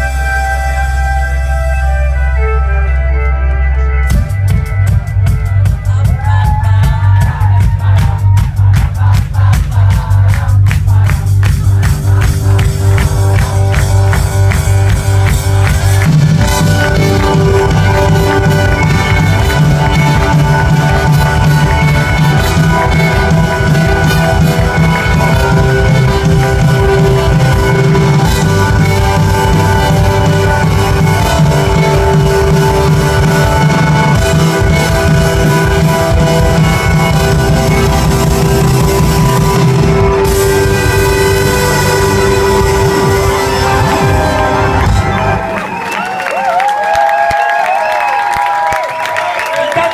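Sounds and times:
heavy bass line: 0.0s - 46.6s
live electronic band playing: 0.0s - 49.9s
trumpet: 12.0s - 47.4s.

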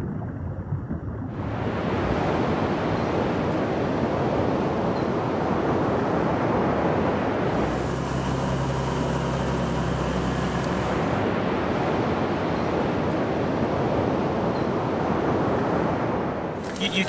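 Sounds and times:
rushing ocean water: 0.0s - 17.0s
steady low hum: 7.4s - 14.5s.

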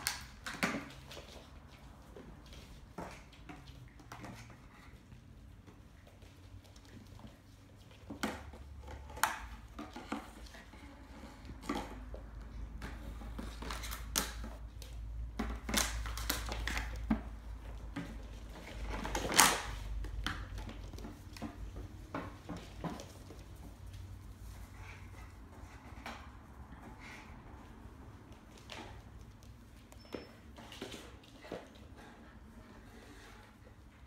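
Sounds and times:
claws clicking on a hard floor: 5.7s - 24.1s.

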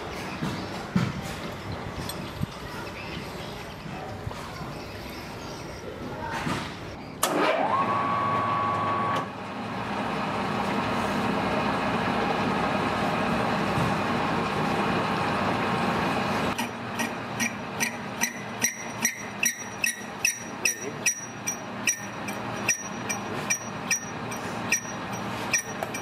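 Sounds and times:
metal lathe running: 14.2s - 26.0s
sharp ringing clicks: 17.0s - 26.0s.

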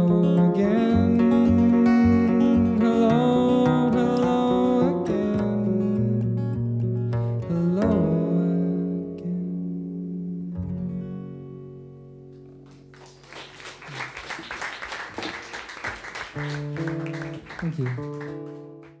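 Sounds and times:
acoustic guitar notes: 0.0s - 13.2s, 16.3s - 19.0s
audience applause: 12.6s - 19.0s.

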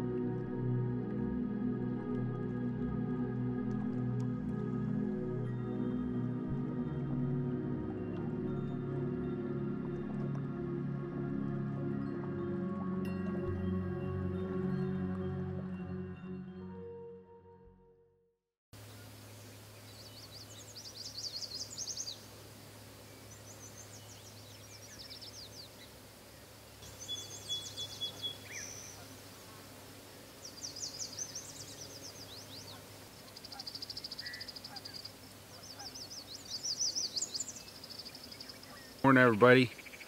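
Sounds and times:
songbirds trilling: 18.8s - 40.0s.

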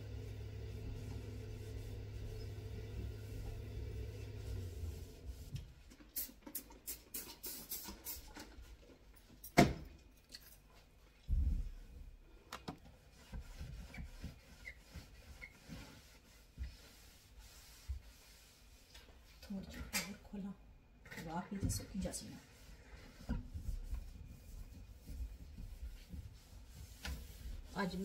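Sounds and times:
cloth rubbing steel drainer: 0.0s - 5.5s, 13.1s - 18.9s, 22.1s - 28.0s.

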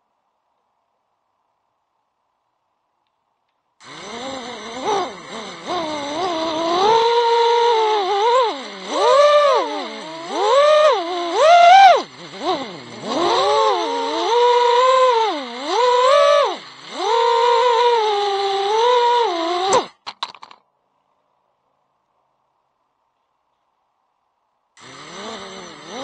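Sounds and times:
quadcopter motors whining: 3.8s - 20.1s, 24.8s - 26.0s.

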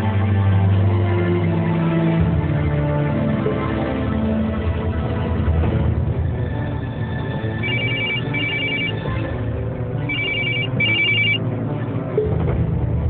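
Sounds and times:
low background music: 0.0s - 13.0s
telephone ringing: 7.6s - 9.2s, 10.1s - 11.4s.

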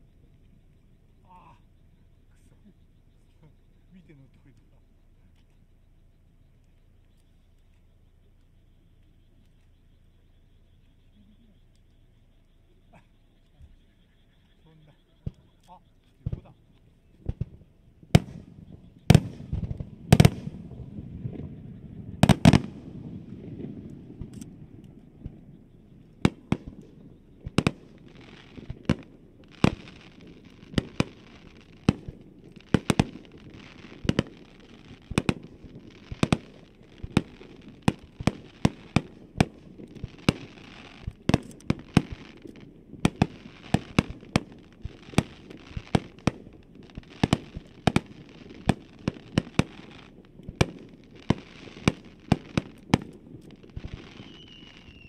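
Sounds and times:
firework shells bursting: 17.2s - 21.6s, 22.2s - 25.5s, 26.1s - 55.0s
firework crackling: 17.2s - 55.0s
high falling whistle: 54.1s - 55.0s.

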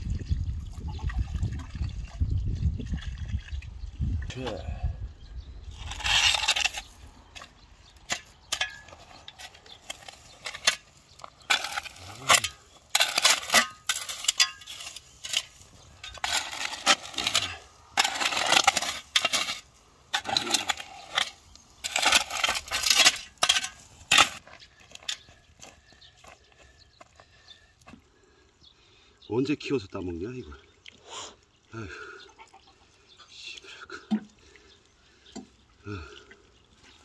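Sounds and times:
shovel scraping stony soil: 5.6s - 25.4s
pebbles rattling off shovel: 9.4s - 24.4s.

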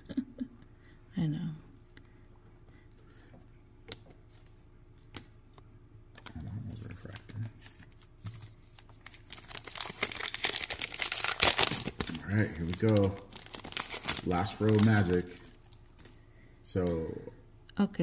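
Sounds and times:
foil card pack crinkling: 7.0s - 16.2s.

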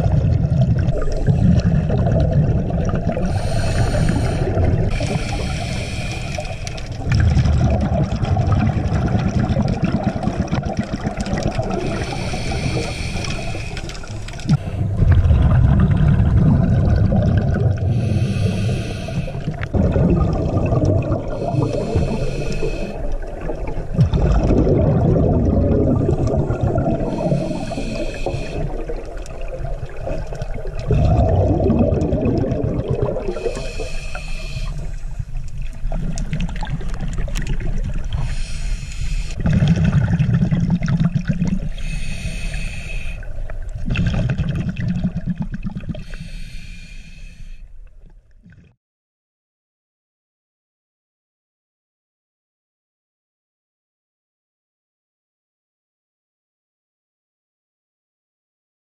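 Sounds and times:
exhaled bubbles rumbling: 0.0s - 46.1s
regulator inhale hiss: 3.2s - 7.0s, 11.8s - 14.9s, 17.9s - 19.6s, 21.3s - 23.2s, 27.0s - 28.8s, 33.3s - 35.4s, 38.2s - 39.4s, 41.7s - 43.4s, 46.0s - 47.8s.

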